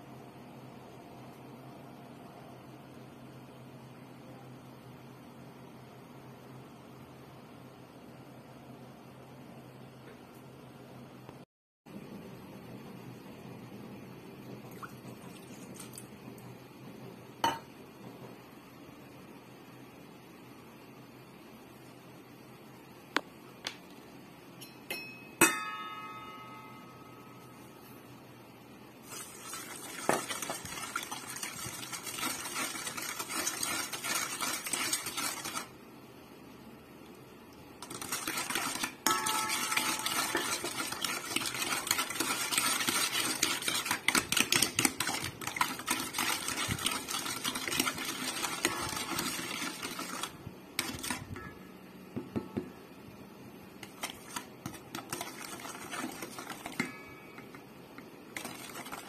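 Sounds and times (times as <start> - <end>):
utensil scraping metal bowl: 29.1 - 35.7, 37.8 - 51.6, 53.8 - 57.6, 58.4 - 59.0.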